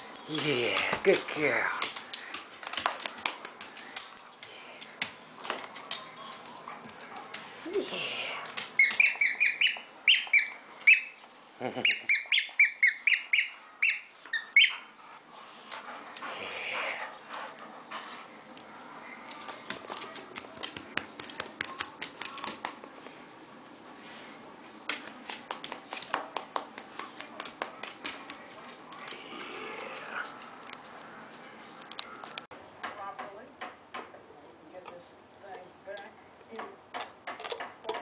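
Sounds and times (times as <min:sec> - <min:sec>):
dog toy squeaking: 0:08.8 - 0:11.2, 0:11.8 - 0:14.8.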